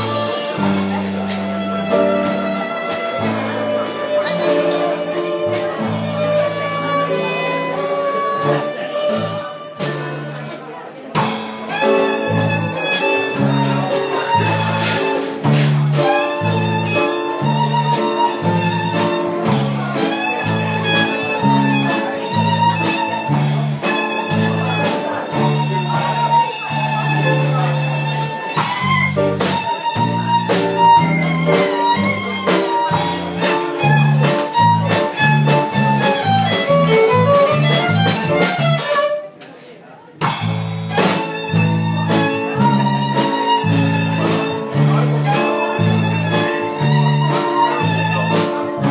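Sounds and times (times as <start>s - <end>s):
electric bass: 0.0s - 1.3s, 28.6s - 38.9s
violin bowed melody: 0.0s - 10.5s, 11.2s - 39.4s, 40.4s - 48.9s
drums: 0.0s - 39.3s, 40.1s - 48.9s.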